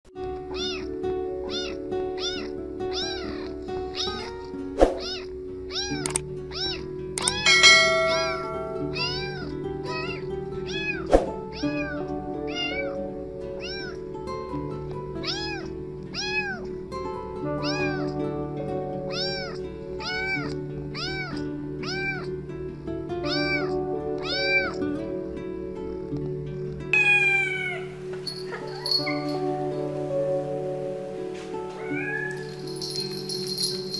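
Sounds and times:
background music: 0.1 - 33.9
kitten meowing: 0.5 - 0.9, 1.5 - 13.0, 13.6 - 14.0, 15.2 - 16.6, 17.6 - 18.1, 19.1 - 22.3, 23.2 - 24.8, 27.0 - 29.4, 31.8 - 32.5.

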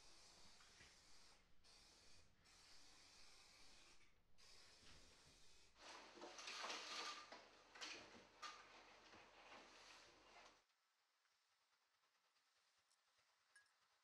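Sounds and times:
clothing rustling and movement: 5.8 - 10.6.

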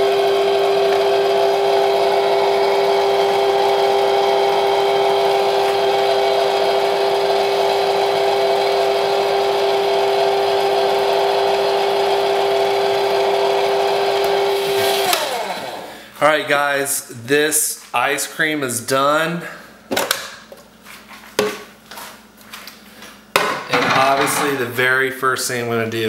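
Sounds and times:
ice cream maker motor humming: 0.0 - 16.0.

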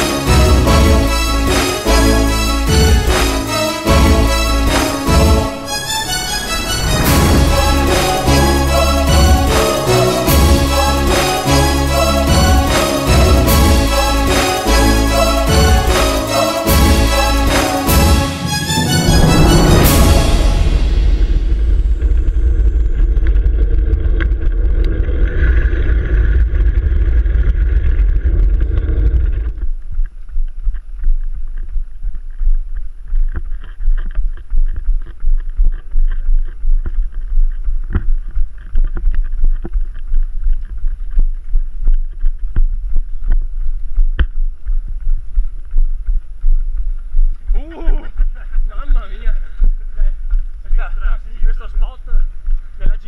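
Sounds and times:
music: 0.0 - 23.4.

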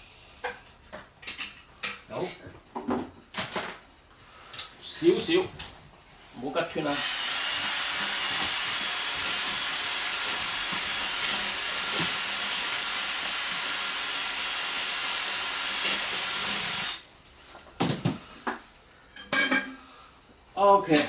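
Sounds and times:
power tool loud hissing: 6.9 - 17.0.

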